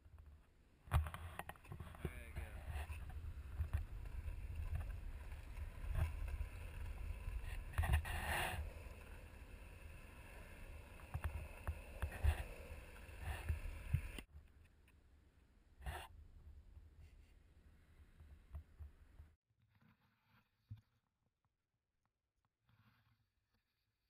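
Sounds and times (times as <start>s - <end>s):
skateboard wheels rolling on asphalt: 0.0s - 14.4s.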